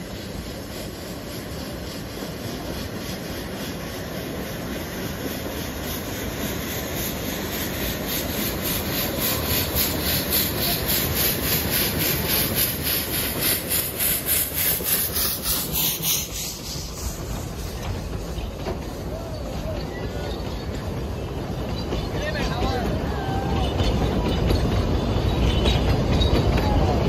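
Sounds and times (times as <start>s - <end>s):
steam locomotive exhaust chuffing: 0.0s - 27.0s
train rumble: 0.0s - 27.0s.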